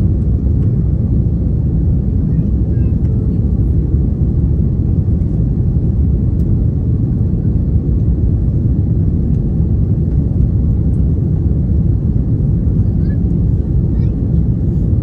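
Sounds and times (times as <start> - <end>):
jet engines rumbling: 0.0 - 15.0.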